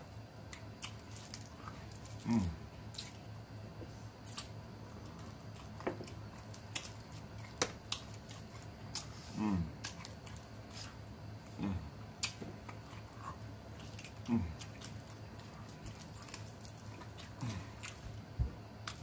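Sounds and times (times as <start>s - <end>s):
lip-smacking and chewing: 0.4s - 3.2s, 4.2s - 19.0s
low grunts: 2.2s - 2.6s, 9.3s - 9.8s, 11.5s - 12.0s, 14.2s - 14.6s.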